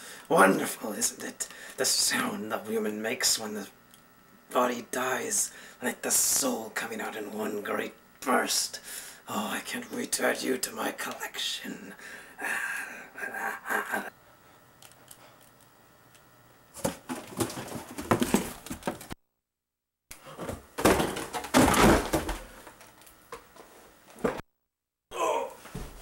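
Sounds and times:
scuffling thumps and rustling: 0:16.8 - 0:19.1, 0:20.3 - 0:22.8.

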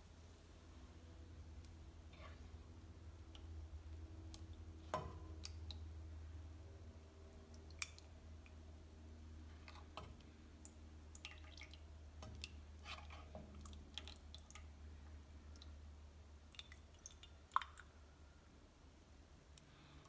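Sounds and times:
low steady hum: 0:00.0 - 0:20.0
wet dripping: 0:07.5 - 0:08.6, 0:09.6 - 0:12.6, 0:16.4 - 0:18.5.

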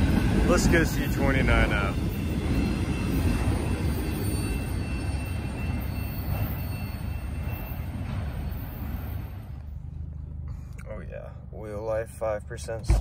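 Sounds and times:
freight train wheels rumbling: 0:00.0 - 0:13.0.

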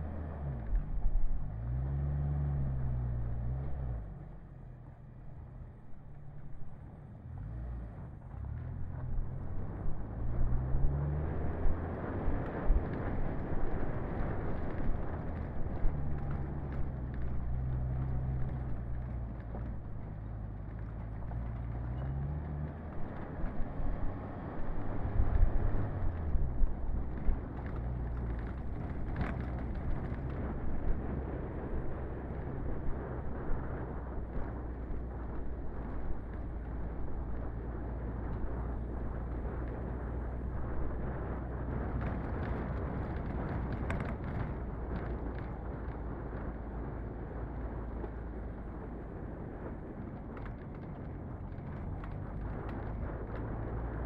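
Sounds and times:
car engine running: 0:00.0 - 0:54.0
tyre and road noise: 0:00.0 - 0:54.0.

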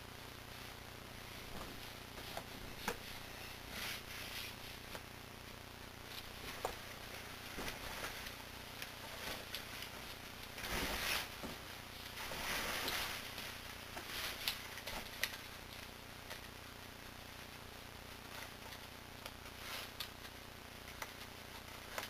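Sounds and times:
low steady hum: 0:00.0 - 0:22.0
clothing rustling: 0:01.3 - 0:05.0, 0:06.1 - 0:15.4.

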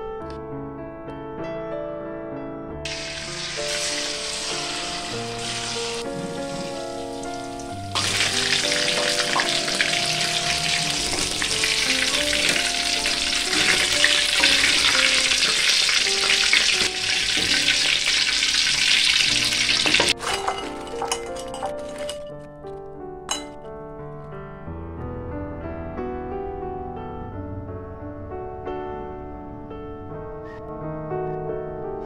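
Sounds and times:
deep-frying sizzle in oil: 0:02.9 - 0:21.2.

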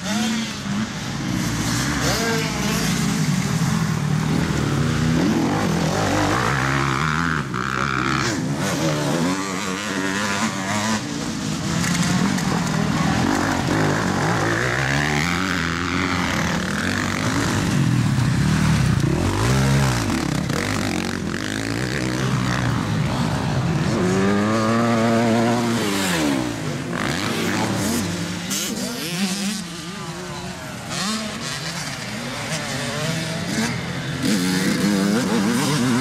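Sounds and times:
dirt bike engines revving: 0:00.0 - 0:36.0.

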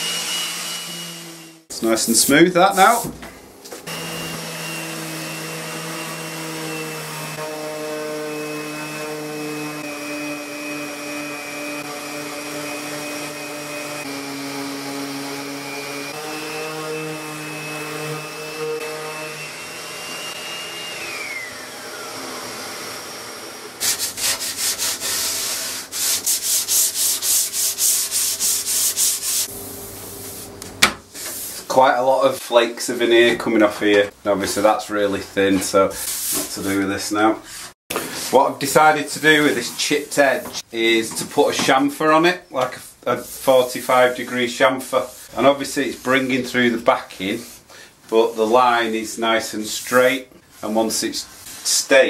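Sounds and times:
orbital sander running: 0:00.0 - 0:01.6, 0:03.9 - 0:30.0
sanding block rubbed by hand: 0:23.8 - 0:29.5, 0:37.5 - 0:40.0.

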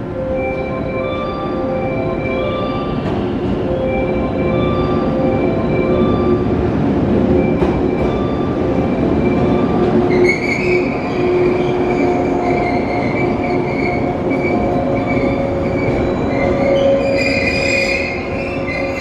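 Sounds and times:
train wheels rumbling on rails: 0:01.9 - 0:19.0
high-pitched brake squeal: 0:10.1 - 0:19.0.

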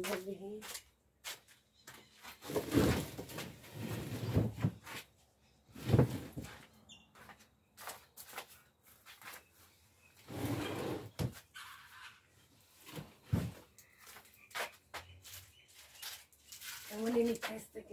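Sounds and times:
cabinet scraping on paved floor: 0:02.3 - 0:05.1, 0:05.7 - 0:06.6, 0:10.2 - 0:12.1.

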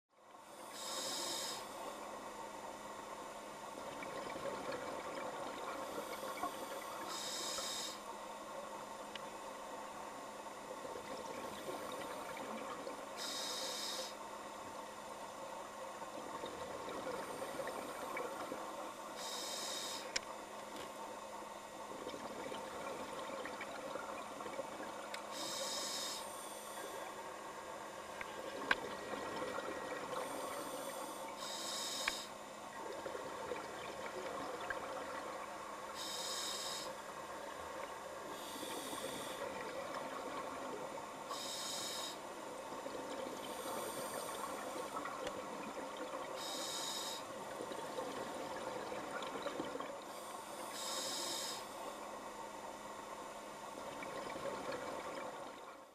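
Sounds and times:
underwater water noise hum: 0:00.1 - 0:55.9
diver breathing through regulator: 0:30.2 - 0:32.4, 0:36.0 - 0:37.0, 0:38.4 - 0:39.5, 0:43.5 - 0:45.0, 0:46.4 - 0:47.3, 0:50.1 - 0:51.8.

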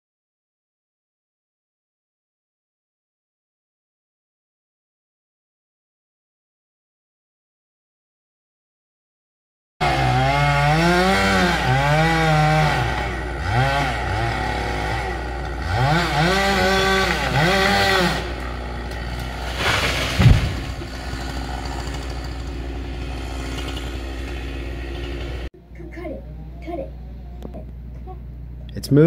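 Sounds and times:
chainsaw revving: 0:09.8 - 0:25.5
low thump: 0:19.7 - 0:20.8.

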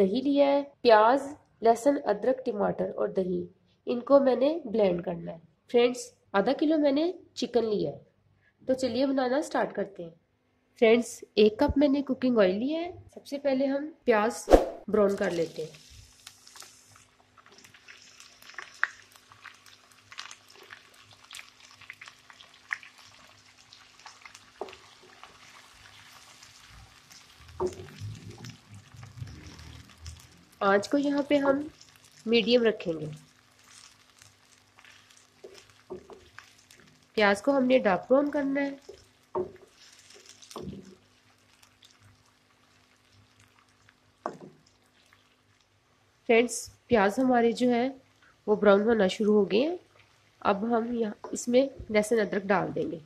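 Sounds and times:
onions sizzling in oil: 0:15.1 - 0:45.6.

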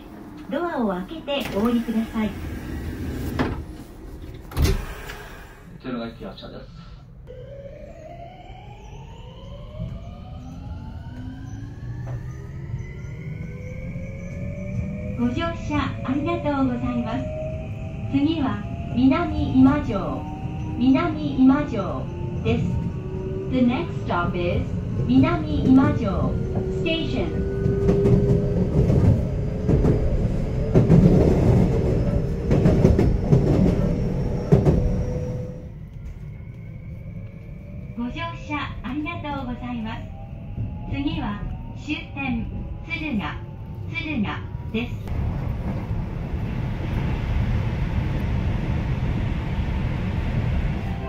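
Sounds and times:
train motors whining: 0:00.0 - 0:05.7
low rumble of train car: 0:00.0 - 0:51.0.

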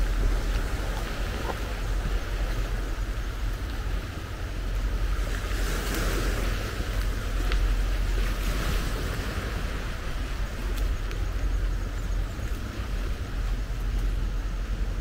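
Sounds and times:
sea waves washing in: 0:00.0 - 0:15.0
wind rumble on microphone: 0:00.0 - 0:15.0.

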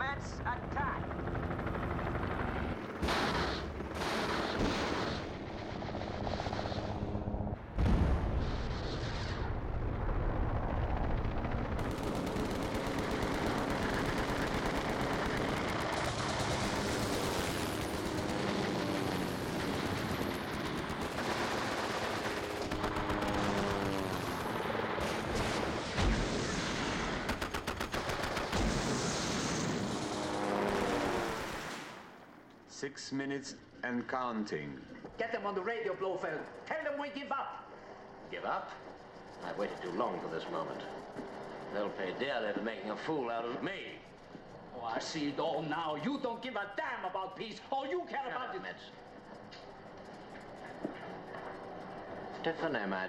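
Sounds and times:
machine-gun fire: 0:02.9 - 0:06.9, 0:10.8 - 0:31.6
explosions: 0:03.0 - 0:07.0, 0:07.6 - 0:13.2, 0:21.0 - 0:32.1.

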